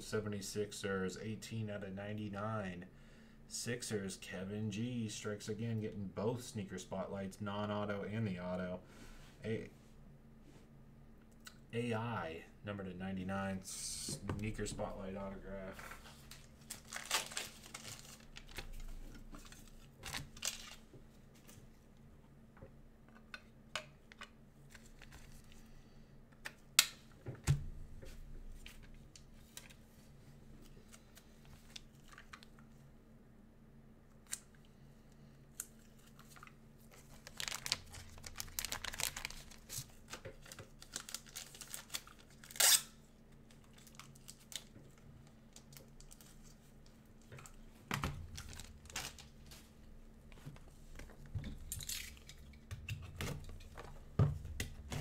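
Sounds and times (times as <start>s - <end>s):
plastic packaging rustling: 15.7s - 21.6s, 35.8s - 42.8s, 43.4s - 47.6s, 48.2s - 49.7s.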